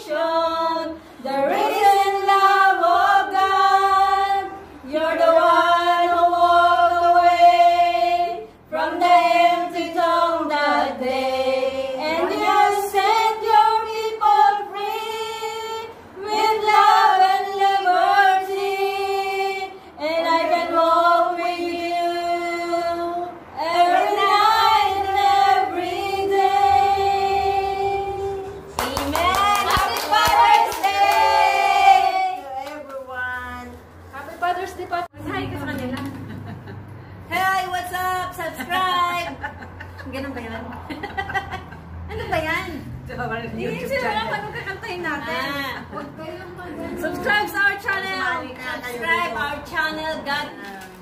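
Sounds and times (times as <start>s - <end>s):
women singing together: 0.0s - 32.9s, 43.6s - 50.6s.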